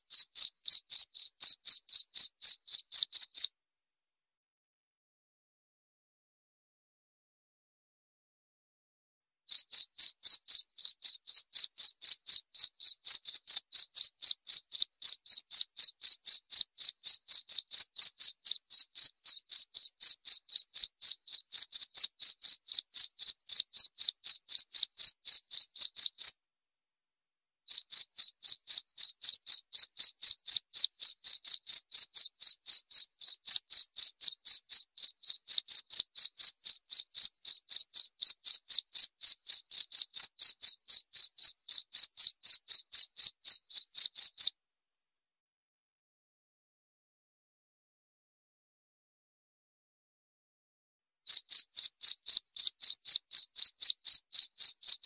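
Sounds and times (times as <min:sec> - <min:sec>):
cricket chirping: 0:00.1 - 0:03.5, 0:09.5 - 0:26.3, 0:27.7 - 0:44.5, 0:51.3 - 0:55.0.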